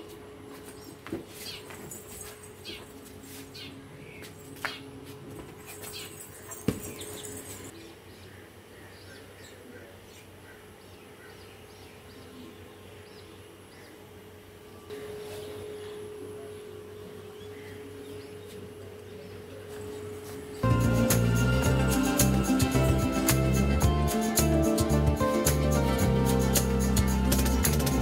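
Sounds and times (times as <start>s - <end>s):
small birds chirping: 0.6s - 23.5s
steady hum: 10.3s - 28.0s.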